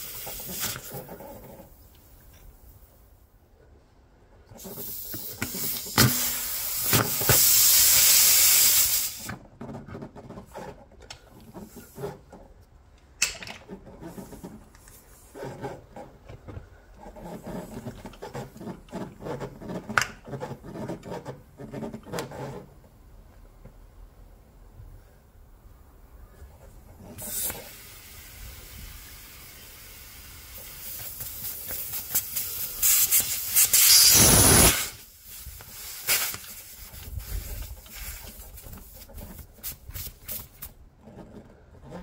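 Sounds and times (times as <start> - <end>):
air hissing from tyre puncture: 0.0 - 1.0, 4.6 - 9.3, 27.1 - 39.0.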